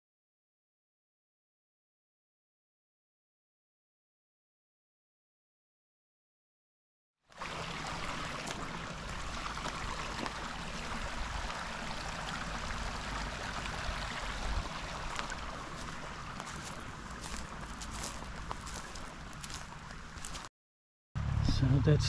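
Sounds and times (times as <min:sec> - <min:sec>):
stream running: 0:07.3 - 0:20.5.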